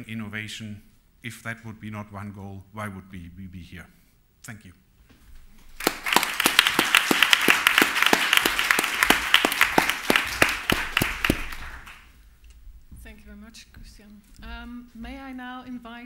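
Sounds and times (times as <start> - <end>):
audience applauding: 5.7 - 12.1
sharp claps: 5.7 - 12.1.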